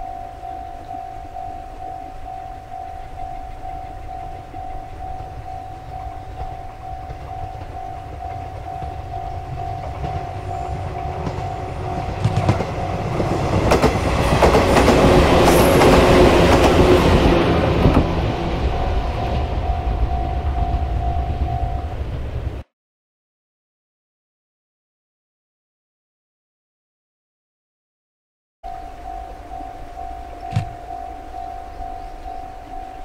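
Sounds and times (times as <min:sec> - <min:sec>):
crossing warning bell dinging: 0:00.0 - 0:22.6, 0:28.6 - 0:33.0
train passing: 0:00.0 - 0:22.6, 0:28.7 - 0:33.0
wheels clacking over rail joints: 0:04.8 - 0:19.8.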